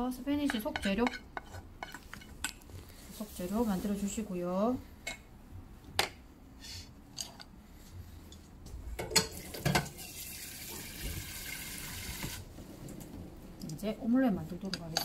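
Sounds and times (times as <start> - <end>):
kitchen tap running: 9.4 - 12.5.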